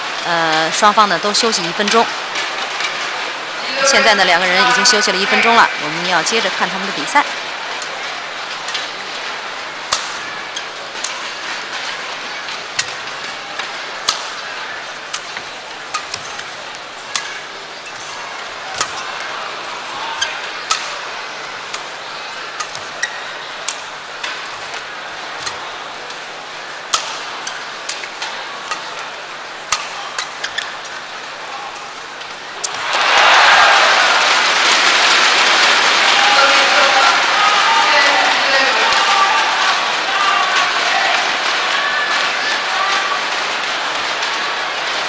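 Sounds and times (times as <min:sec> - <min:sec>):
arena crowd noise: 0:00.0 - 0:45.0
racket striking shuttlecock: 0:09.9 - 0:10.2, 0:12.8 - 0:13.2, 0:14.0 - 0:14.4, 0:18.7 - 0:19.3, 0:20.2 - 0:21.1, 0:22.6 - 0:25.6, 0:26.9 - 0:29.0, 0:29.7 - 0:30.7.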